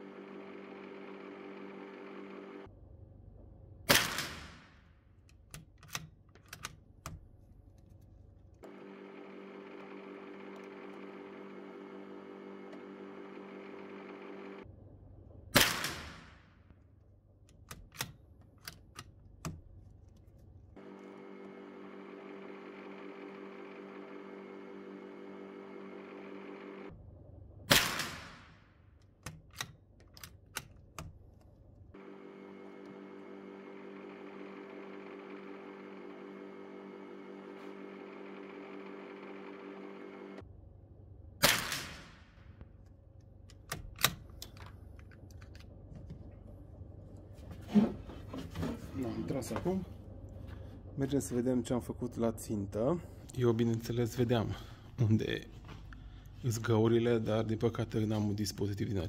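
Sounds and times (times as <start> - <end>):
rifle shots ringing in room: 3.8 - 6.8, 15.5 - 16.9, 27.6 - 30.8, 41.4 - 42.7
rifle bolt clicks: 17.5 - 19.6.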